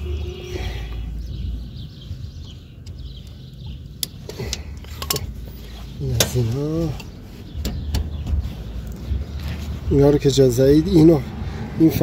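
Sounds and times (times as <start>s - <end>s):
low background rumble: 0.0s - 11.8s
light metallic clicks: 4.0s - 5.3s.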